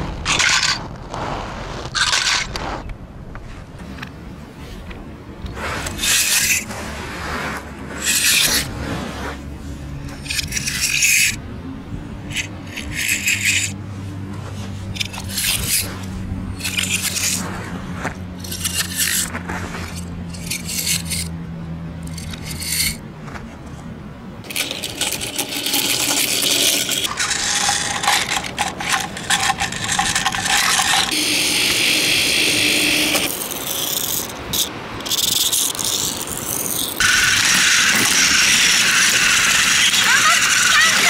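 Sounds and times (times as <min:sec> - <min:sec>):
toy cars and trains clattering: 0:00.2 - 0:00.9, 0:01.9 - 0:02.6, 0:05.8 - 0:06.7, 0:08.0 - 0:08.7, 0:10.1 - 0:11.4, 0:12.3 - 0:13.8, 0:14.9 - 0:17.5, 0:18.3 - 0:21.3, 0:22.0 - 0:23.0, 0:24.4 - 0:41.0
toy train motor whirring: 0:05.8 - 0:06.7, 0:08.0 - 0:08.7, 0:10.1 - 0:11.4, 0:12.3 - 0:13.8, 0:15.0 - 0:16.0, 0:16.6 - 0:17.5, 0:18.4 - 0:19.3, 0:19.9 - 0:21.3, 0:22.0 - 0:23.0, 0:24.5 - 0:41.0.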